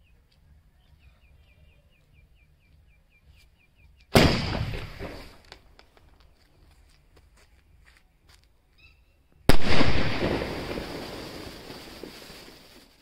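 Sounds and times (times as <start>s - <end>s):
firework launch blast: 4.2s - 5.4s, 9.5s - 13.0s
hissing sparks: 10.4s - 13.0s.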